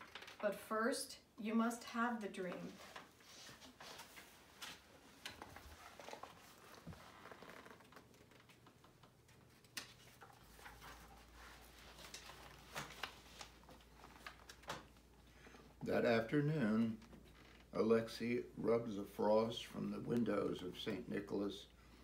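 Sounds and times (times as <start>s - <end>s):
paper pages rustling: 2.5s - 15.5s.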